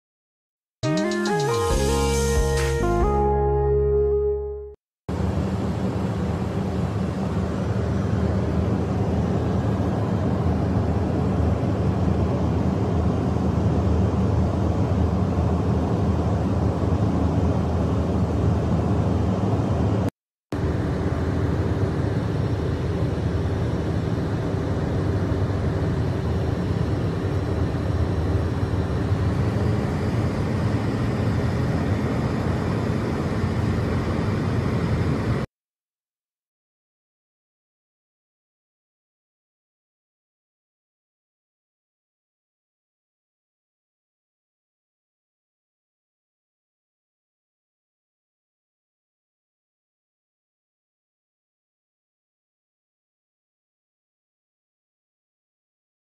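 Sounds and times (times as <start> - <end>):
aircraft cabin rumble and hiss: 5.1 - 35.5.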